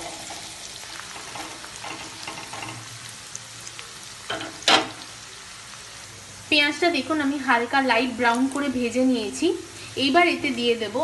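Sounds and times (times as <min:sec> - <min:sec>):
spatula clattering: 0:00.0 - 0:03.0
onions sizzling in oil: 0:00.0 - 0:11.0.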